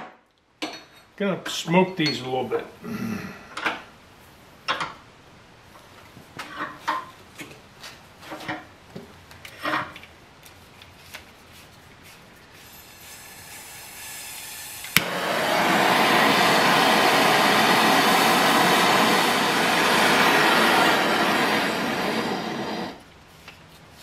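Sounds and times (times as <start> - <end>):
faint gas hiss: 1.2 - 4.5, 12.5 - 23.1
torch flame rushing hiss: 12.6 - 23.0
torch lighting click: 14.8 - 23.0.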